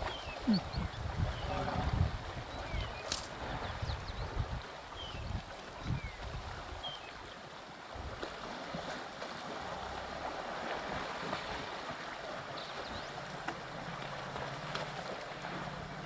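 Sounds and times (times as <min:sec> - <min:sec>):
wind on the microphone: 0:00.0 - 0:07.3
water sloshing and splashing: 0:00.0 - 0:16.0.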